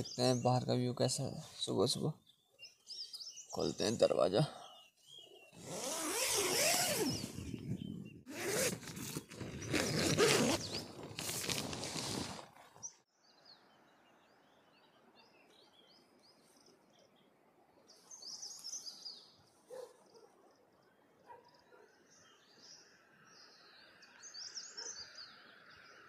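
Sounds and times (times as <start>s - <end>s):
birds chirping: 0.0s - 26.0s
tent zipper unzipping: 5.6s - 7.5s, 8.3s - 12.9s.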